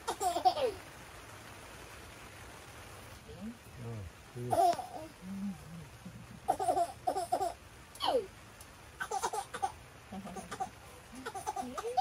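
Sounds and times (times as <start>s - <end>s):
small child babbling and laughing: 6.5s - 8.3s, 9.0s - 12.0s.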